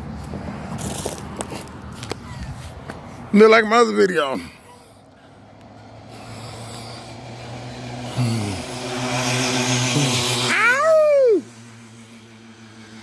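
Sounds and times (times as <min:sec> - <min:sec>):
vehicle engine humming: 0:00.0 - 0:13.0
hiss of passing vehicle: 0:04.5 - 0:13.0
short rising and falling wail: 0:07.2 - 0:12.0.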